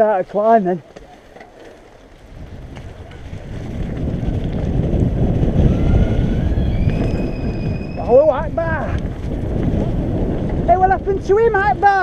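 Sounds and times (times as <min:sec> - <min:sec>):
bike tyres rolling on gravel: 0:00.0 - 0:12.0
wind rushing over microphone: 0:02.0 - 0:12.0.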